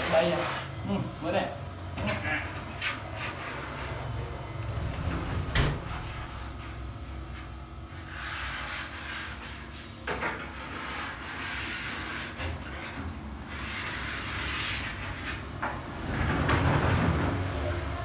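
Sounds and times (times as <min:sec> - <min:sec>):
sliding door rollers rumbling: 0:03.2 - 0:06.8, 0:13.6 - 0:18.0.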